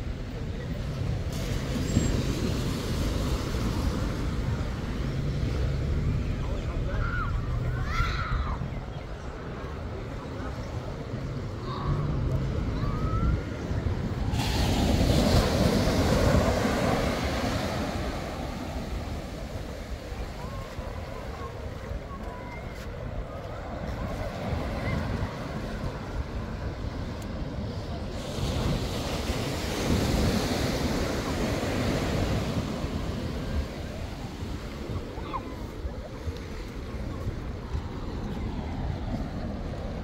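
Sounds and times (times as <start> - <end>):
wave breaking and washing in: 0.0 - 40.0
wind rumble on microphone: 0.0 - 40.0
wave breaking on sand: 14.1 - 22.1.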